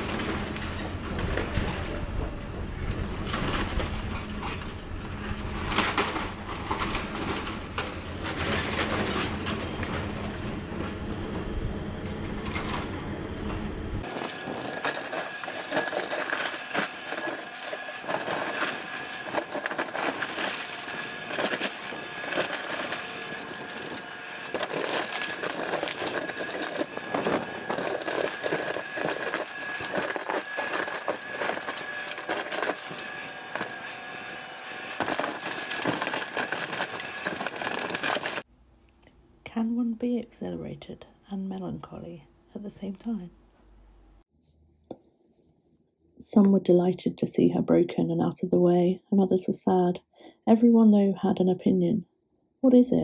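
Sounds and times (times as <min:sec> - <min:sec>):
steady high whine: 0:00.0 - 0:38.7
metal crunching and grinding: 0:02.9 - 0:11.0, 0:14.0 - 0:38.5
sharp metal cracking and snapping: 0:05.4 - 0:10.2, 0:14.0 - 0:34.1, 0:34.7 - 0:38.4.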